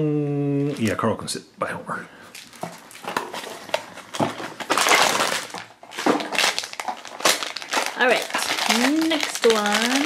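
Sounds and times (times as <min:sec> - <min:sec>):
foil bag crinkling: 0:02.3 - 0:10.0.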